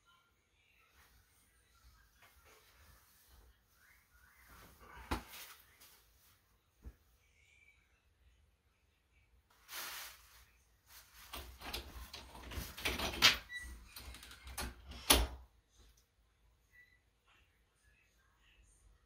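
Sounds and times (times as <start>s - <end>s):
soft rustle: 9.5s - 12.8s
door opening and shutting: 11.3s - 15.4s.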